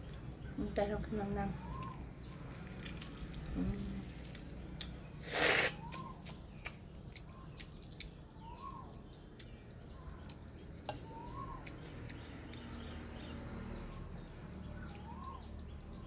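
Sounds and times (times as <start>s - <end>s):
bird call rising and falling: 11.0s - 12.8s.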